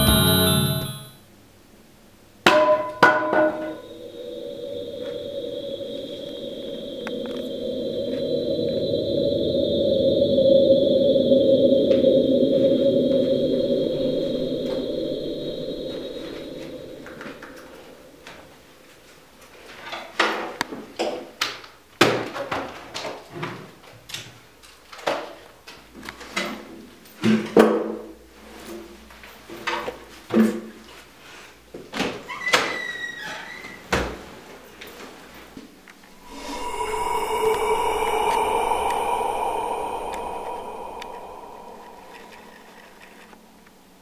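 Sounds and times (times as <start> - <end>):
door squeak: 32.3 - 33.8.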